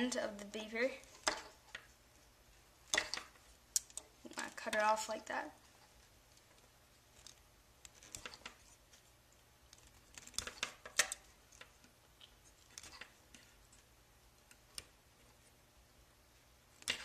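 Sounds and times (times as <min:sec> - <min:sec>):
scissors snipping wire: 0:09.7 - 0:11.8.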